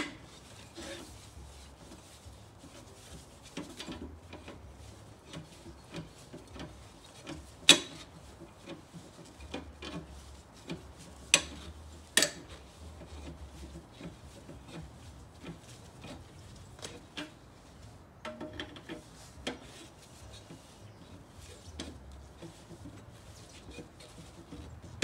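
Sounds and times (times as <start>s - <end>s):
hand tools scraping and clicking: 0.0s - 25.0s
sharp clacks of wheel hardware: 5.3s - 8.8s, 10.7s - 12.6s, 18.2s - 19.8s.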